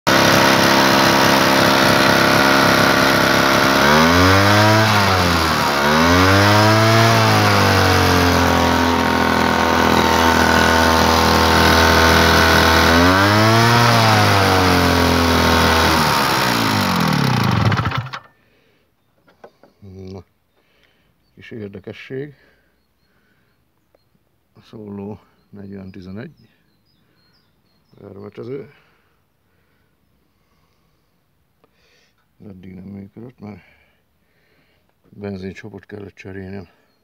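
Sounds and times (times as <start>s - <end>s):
two-stroke sprayer engine revving: 0.1s - 18.3s.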